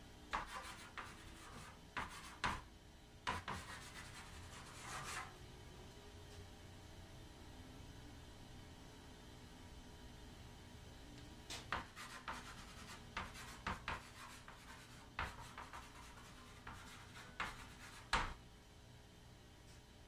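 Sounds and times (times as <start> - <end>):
chalk scratching on chalkboard: 0.3 - 2.6, 3.3 - 5.3, 11.7 - 18.4
sharp chalk tap: 0.3 - 2.6, 3.3 - 4.3, 11.6 - 18.4.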